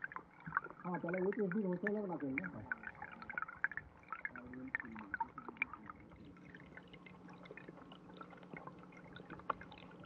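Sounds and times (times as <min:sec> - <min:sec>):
faint low hum: 0:00.0 - 0:10.0
stream water trickling underwater: 0:00.0 - 0:10.0.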